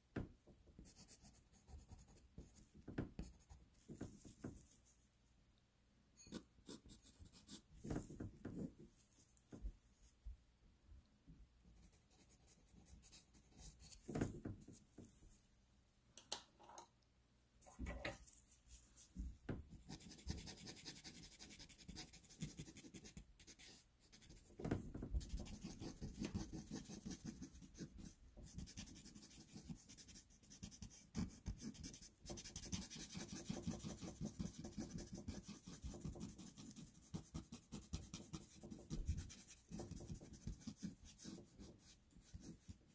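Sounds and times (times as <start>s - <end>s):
pencil scratching on paper: 0.8s - 4.9s, 6.2s - 9.2s, 19.8s - 42.9s.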